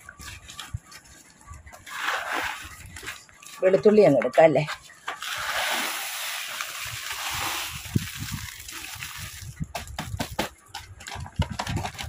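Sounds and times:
dried ingredients pouring: 5.2s - 9.5s.

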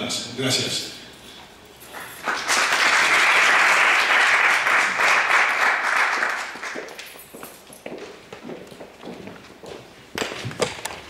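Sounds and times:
audience applauding: 1.9s - 7.0s.

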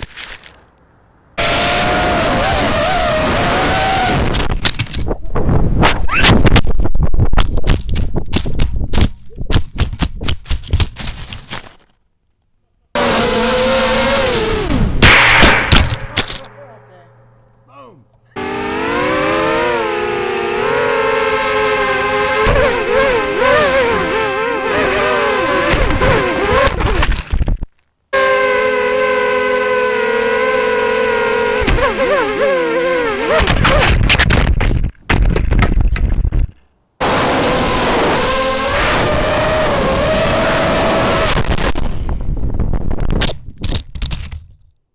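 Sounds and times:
drone motors whining: 13.0s - 15.0s, 18.2s - 27.0s
drone crashing: 14.0s - 17.4s.

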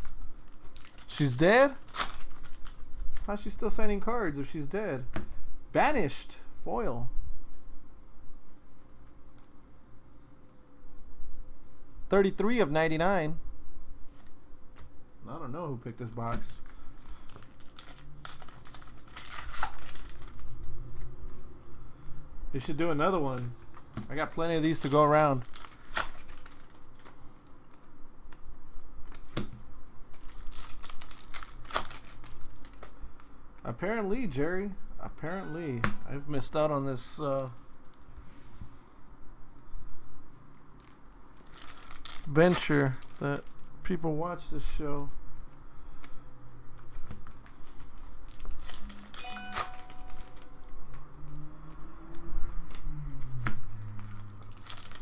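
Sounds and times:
foil wrappers crinkling: 0.0s - 3.4s, 16.2s - 21.0s, 23.7s - 27.9s, 30.0s - 33.3s, 40.5s - 43.7s, 46.8s - 50.7s, 53.9s - 55.0s
low music: 35.2s - 36.2s, 49.1s - 50.8s
short electronic chime: 35.3s - 36.1s, 49.2s - 50.7s.

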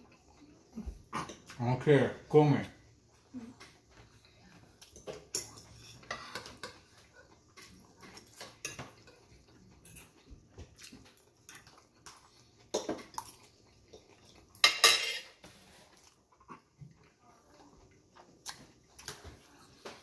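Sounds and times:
fork scraping a ceramic plate: 5.4s - 6.8s.

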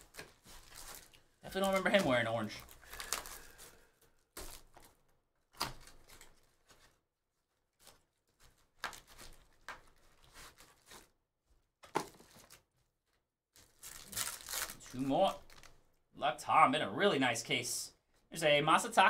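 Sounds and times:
cardboard and foil rustling: 0.0s - 7.0s, 7.6s - 11.2s, 12.0s - 15.8s.

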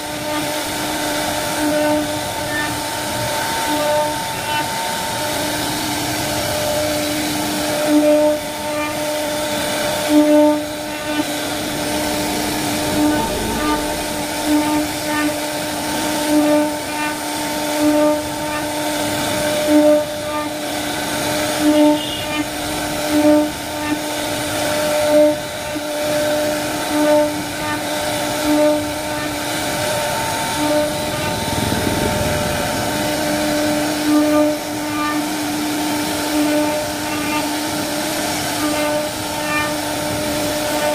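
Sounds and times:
router spindle whining: 0.0s - 17.4s, 27.4s - 40.9s
rush of noise: 10.6s - 16.2s, 29.5s - 34.9s.

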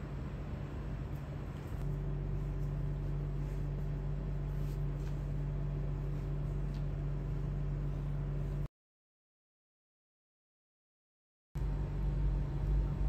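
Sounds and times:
electrical appliance humming: 0.0s - 8.7s, 11.6s - 13.0s.

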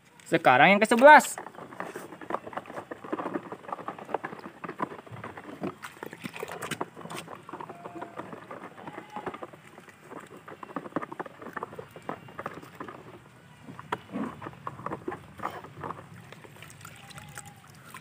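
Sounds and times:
water dripping: 16.2s - 18.0s.

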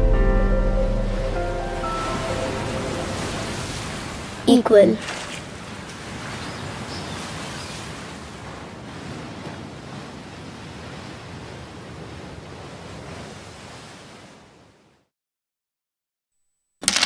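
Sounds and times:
waves washing onto beach: 1.6s - 15.1s.

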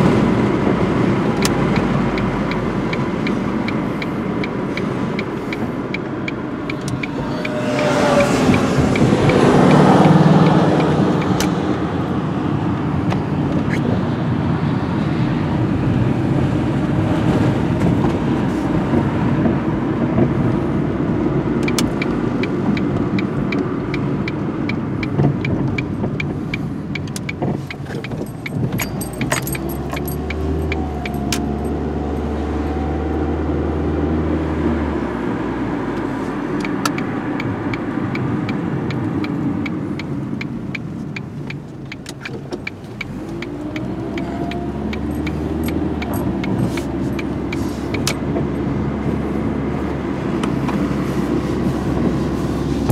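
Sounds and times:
turn signal ticking: 0.0s - 33.9s, 34.8s - 52.9s
road and engine noise: 0.0s - 52.9s
vehicle passing: 1.9s - 12.5s.

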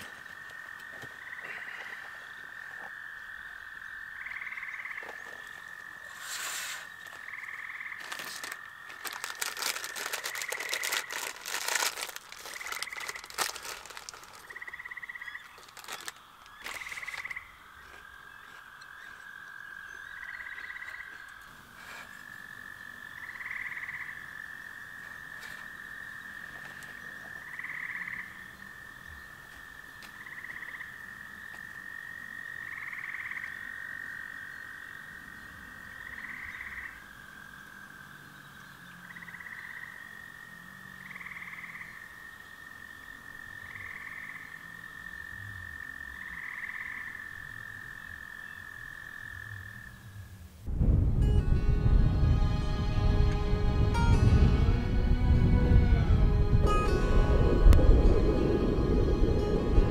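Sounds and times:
frogs calling: 0.0s - 50.6s
paper crinkling and rustling: 8.0s - 14.7s, 15.3s - 17.3s.

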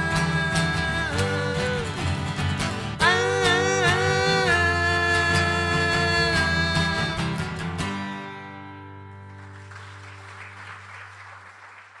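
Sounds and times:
acoustic guitars strumming: 0.0s - 9.7s
faint applause: 9.1s - 12.0s.

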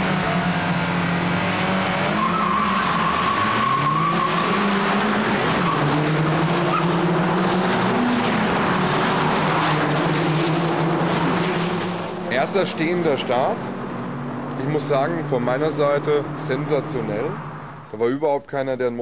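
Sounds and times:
car engines revving: 0.0s - 18.0s
tyre squeal: 2.1s - 6.0s.

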